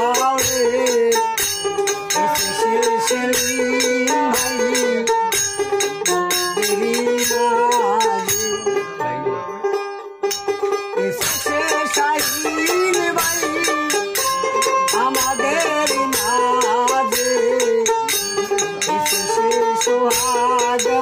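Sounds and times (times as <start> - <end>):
man singing: 0.0 - 8.8, 11.0 - 21.0
jingling percussion: 0.0 - 9.2, 10.2 - 21.0
plucked lute: 0.0 - 21.0.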